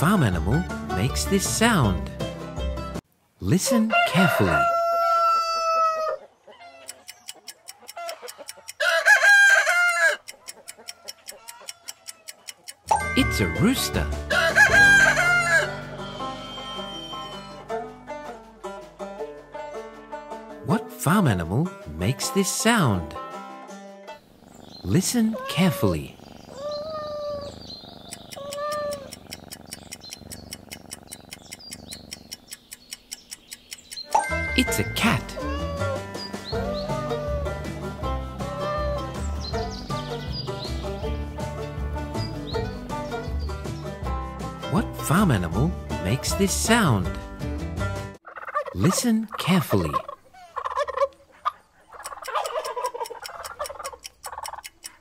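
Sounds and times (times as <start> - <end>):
rooster crowing: 3.9 - 6.2, 8.0 - 10.2, 14.3 - 17.2
timer ticking: 6.8 - 8.8, 10.2 - 14.1, 28.1 - 35.8, 52.0 - 55.0
cat purring: 24.2 - 32.7
cat meowing: 24.6 - 30.3, 35.1 - 37.6.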